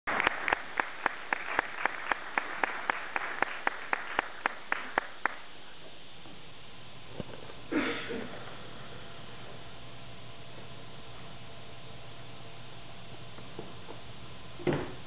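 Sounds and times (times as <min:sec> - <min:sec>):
audience applause: 0:00.1 - 0:05.5
person clapping close by: 0:00.1 - 0:05.5.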